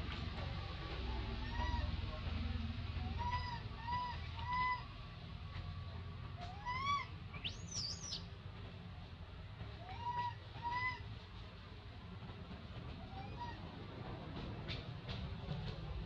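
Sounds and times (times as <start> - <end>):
animal calls and squeals: 1.2 - 5.0, 6.3 - 8.3, 9.8 - 11.2, 12.9 - 13.7.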